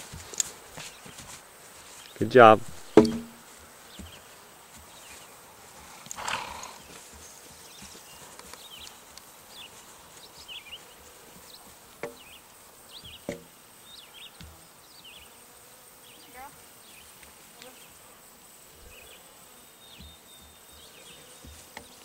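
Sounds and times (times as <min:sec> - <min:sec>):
horse hoofbeats on grass: 0:00.0 - 0:12.4.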